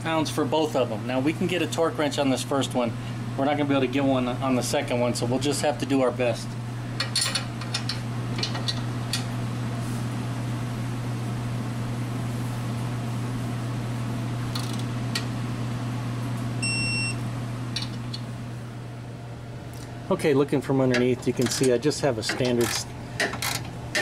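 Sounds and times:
steady low hum: 0:00.0 - 0:24.0
torque wrench ratchet clicks: 0:14.5 - 0:14.8.

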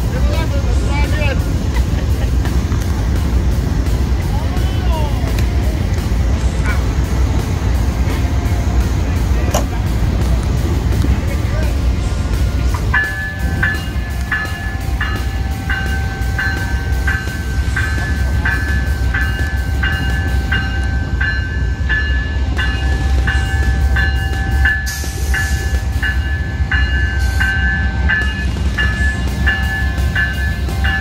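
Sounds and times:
diesel locomotive rumbling: 0:00.0 - 0:31.0
railroad crossing bell ringing: 0:04.2 - 0:31.0.

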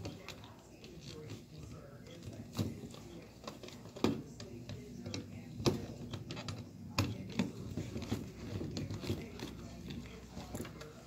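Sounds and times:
handling noise: 0:00.0 - 0:11.0.

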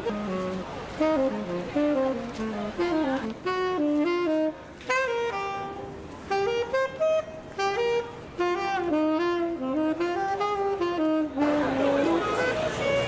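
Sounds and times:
tenor saxophone melody: 0:00.0 - 0:13.0.

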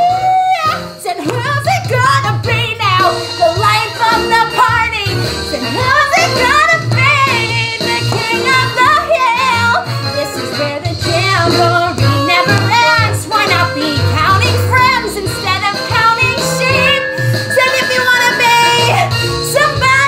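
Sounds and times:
show tune backing track: 0:00.0 - 0:20.0
woman singing: 0:00.0 - 0:20.0.

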